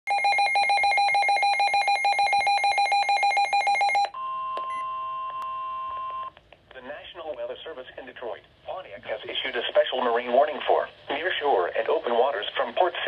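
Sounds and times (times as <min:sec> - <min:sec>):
radio alarm beeping rapidly: 0:00.1 - 0:04.9.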